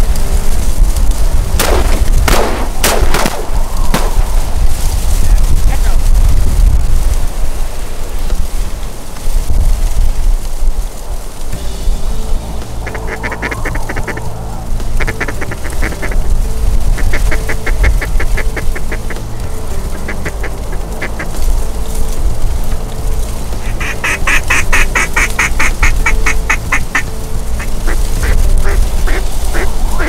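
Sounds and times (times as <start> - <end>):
wind rumble on microphone: 0.0 - 30.0
duck quacking: 12.8 - 14.2, 15.0 - 16.3, 17.0 - 19.2, 20.0 - 21.3, 23.6 - 27.0, 27.8 - 30.0.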